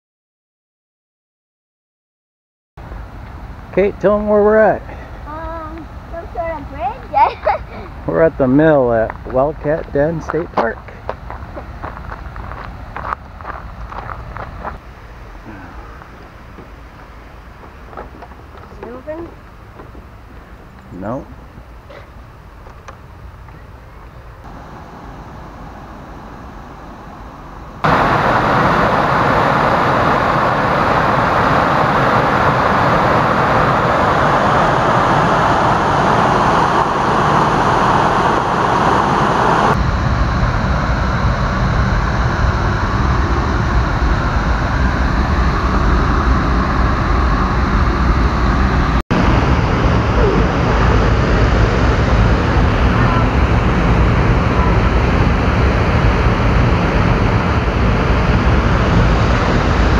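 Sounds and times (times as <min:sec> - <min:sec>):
low steady rumble: 0:02.8 - 0:59.9
water rushing over spillway: 0:27.9 - 0:35.0.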